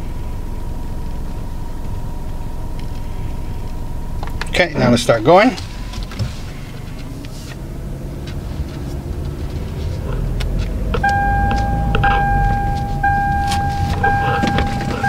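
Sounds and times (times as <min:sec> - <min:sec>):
car engine and road rumble: 0:00.0 - 0:15.0
electronic warning chime beeping: 0:11.0 - 0:15.0.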